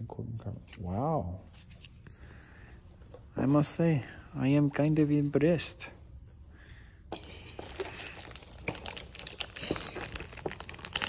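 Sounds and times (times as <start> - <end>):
foil packs crinkling: 7.1 - 11.0.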